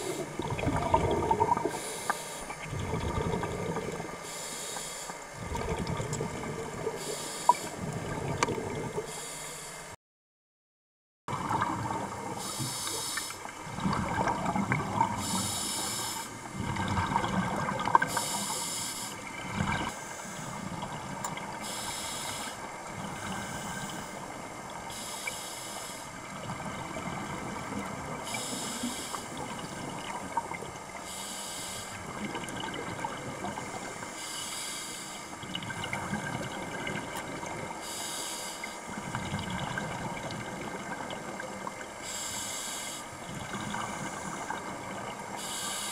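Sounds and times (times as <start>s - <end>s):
bubbling underwater: 0.0s - 1.8s, 2.5s - 4.2s, 5.4s - 7.0s, 7.7s - 9.1s, 11.3s - 12.4s, 13.5s - 15.4s, 16.5s - 18.2s, 32.0s - 33.9s, 35.4s - 37.8s, 39.0s - 42.0s
regulator breathing hiss: 1.7s - 2.5s, 4.2s - 5.2s, 7.0s - 7.8s, 9.1s - 9.9s, 12.4s - 13.5s, 15.2s - 16.4s, 18.1s - 19.3s, 19.9s - 20.7s, 21.6s - 24.3s, 24.9s - 26.1s, 28.3s - 29.4s, 31.0s - 32.0s, 33.6s - 35.4s, 37.8s - 38.8s, 42.0s - 43.1s, 45.4s - 45.9s.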